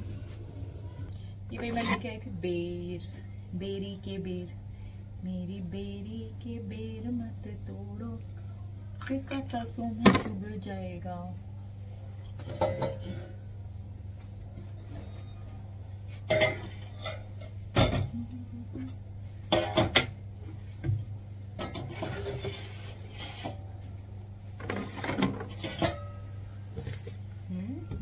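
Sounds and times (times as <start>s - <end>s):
steady low hum: 0.0s - 28.0s
metal bowls and pots clattering: 12.4s - 13.4s, 16.2s - 18.2s, 18.8s - 20.2s, 21.6s - 23.7s, 24.6s - 26.3s.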